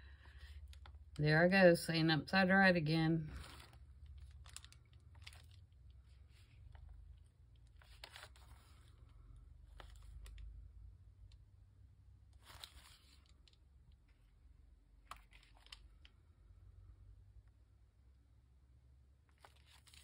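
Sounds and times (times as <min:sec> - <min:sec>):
paper rustling: 0:03.3 - 0:07.0, 0:07.7 - 0:09.1, 0:12.4 - 0:13.6, 0:19.3 - 0:20.0.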